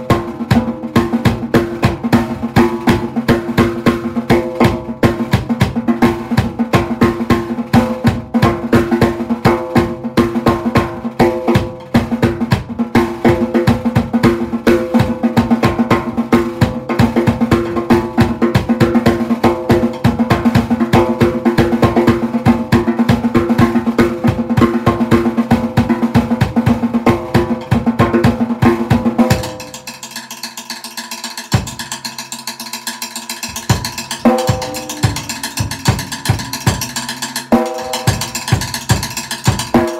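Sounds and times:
drum kit playing: 0.0s - 39.9s
steady held pitches: 33.2s - 39.9s.

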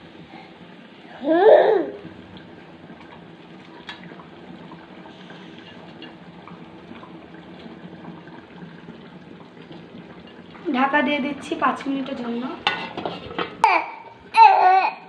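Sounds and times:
curry boiling with bubbling hiss: 0.0s - 15.0s
faint clicks and plops: 2.0s - 13.5s.

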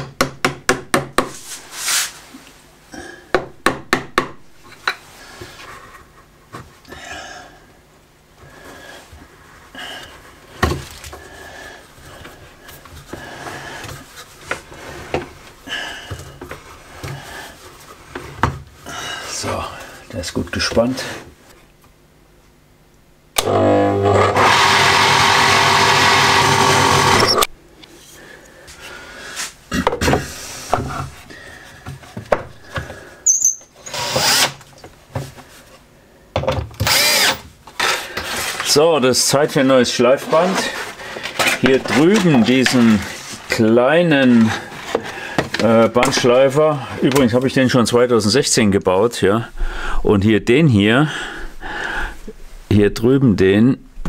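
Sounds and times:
wavering squeak: 33.2s - 33.7s.

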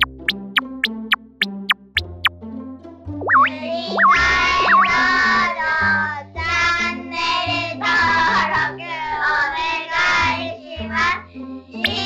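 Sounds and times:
bass line: 0.0s - 2.3s, 3.1s - 5.4s
high child-like singing voice: 11.8s - 12.0s.

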